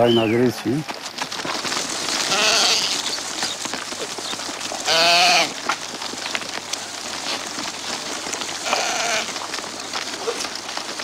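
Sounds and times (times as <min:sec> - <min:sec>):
sheep bleating: 0:02.3 - 0:03.0, 0:04.8 - 0:05.6, 0:08.6 - 0:09.5.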